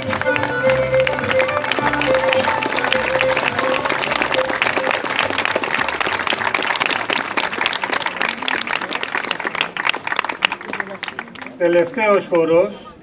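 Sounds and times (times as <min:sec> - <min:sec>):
live folk band: 0:00.0 - 0:05.3
audience applause: 0:00.0 - 0:12.0.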